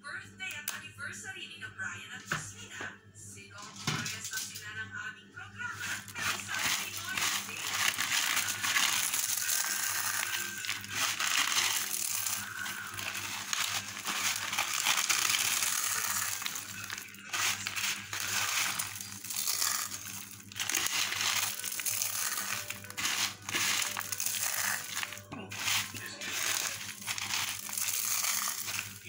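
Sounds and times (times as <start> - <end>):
corn flakes crunching: 5.8 - 29.0.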